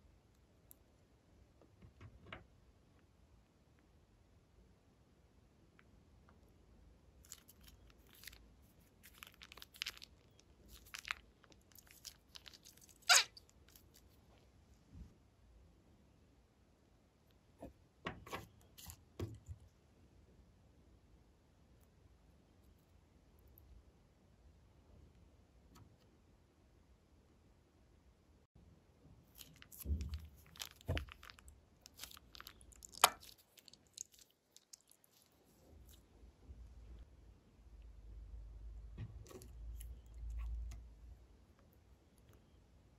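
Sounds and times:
slime squelching in plastic bag: 7.2 - 14.2, 29.2 - 36.0
plastic bag crinkling: 7.3 - 14.1.

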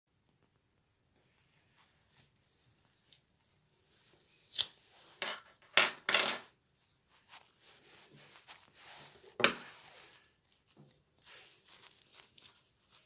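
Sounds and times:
metal tools clattering on countertop: 5.2 - 6.5.

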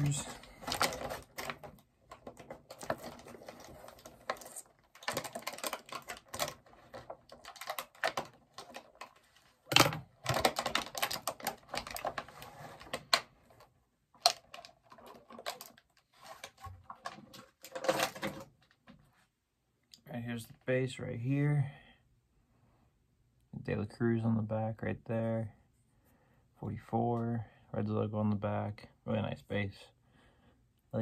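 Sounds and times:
packing rustling and scraping: 0.0 - 13.6.

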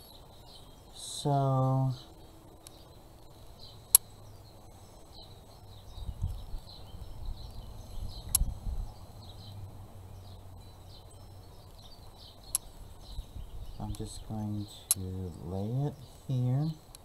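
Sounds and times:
sharp click: 8.3 - 8.5, 14.8 - 15.1.

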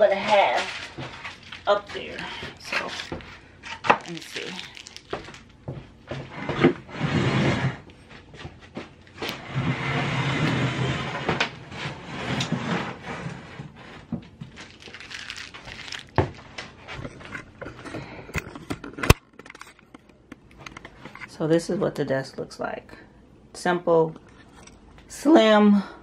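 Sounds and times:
desk scraping on wooden floor: 6.1 - 7.9, 9.2 - 14.6.

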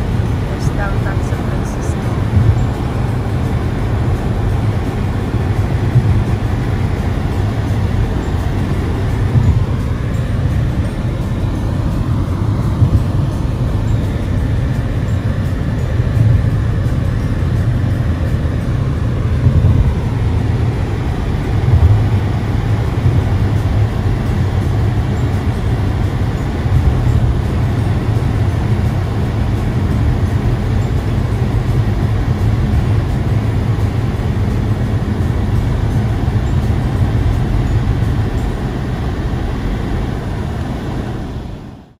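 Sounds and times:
car engine and road noise: 0.0 - 42.0.

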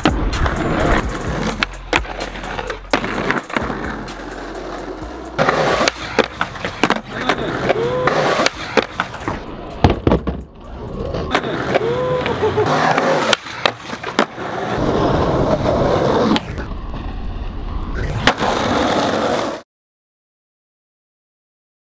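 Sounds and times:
skateboard wheels rolling on concrete: 0.0 - 19.6
skateboard knocking on concrete ledge: 9.8 - 10.5.

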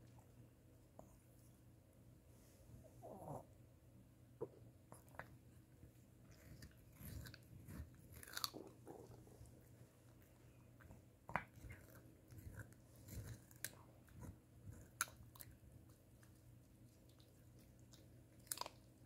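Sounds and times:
dog crunching carrot: 6.2 - 19.0.

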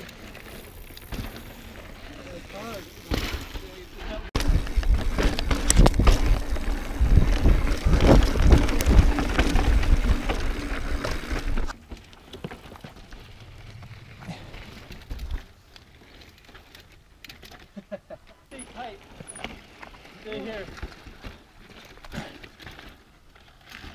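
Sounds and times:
bike tyres bumping over rock: 0.0 - 18.0
bike rattling: 0.0 - 23.9.

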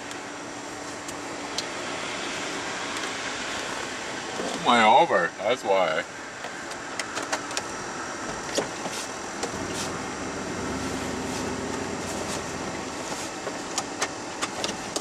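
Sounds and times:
heater fan hiss: 0.0 - 15.0
truck idling: 9.3 - 14.4
low rumble: 9.5 - 13.2.

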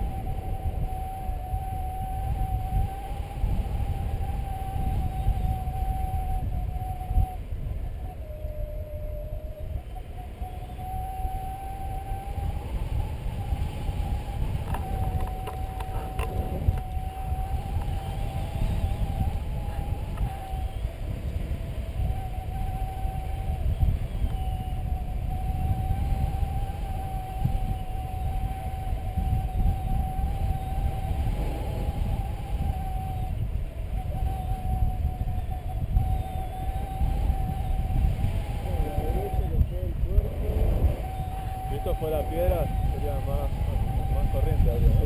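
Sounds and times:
wavering high tone: 0.0 - 45.0
wind buffeting microphone: 0.0 - 45.0
faint clicks: 14.6 - 17.0.

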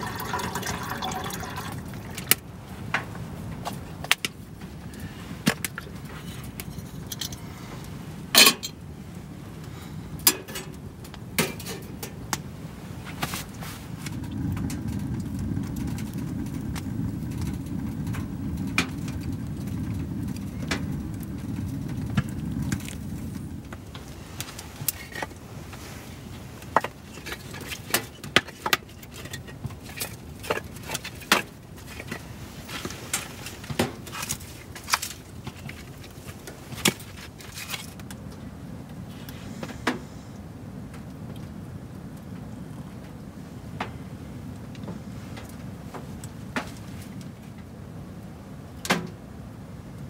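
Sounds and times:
low rustling rumble: 12.0 - 28.2.

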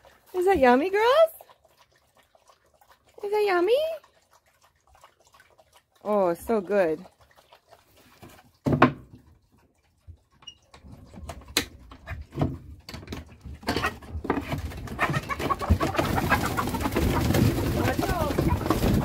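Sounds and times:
chickens clucking: 13.4 - 19.0.

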